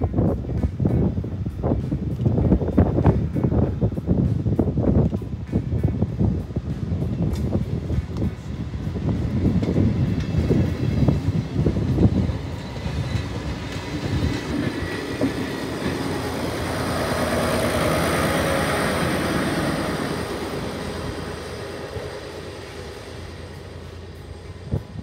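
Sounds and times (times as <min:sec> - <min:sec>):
diesel train passing on rails: 0:00.0 - 0:25.0.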